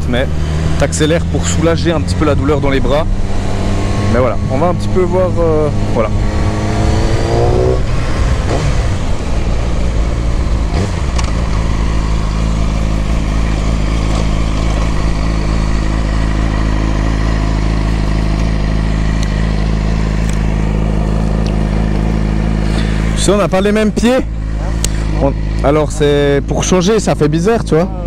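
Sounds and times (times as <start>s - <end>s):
motorcycle engine idling: 9.0s - 28.0s.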